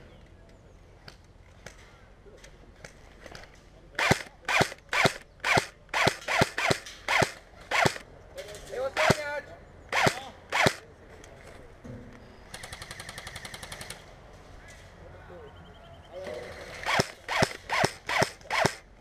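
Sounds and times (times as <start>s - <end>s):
rapid full-auto burst: 4.0s - 8.0s, 9.9s - 10.8s, 16.3s - 18.9s
airsoft rifle single shots: 9.9s - 10.8s.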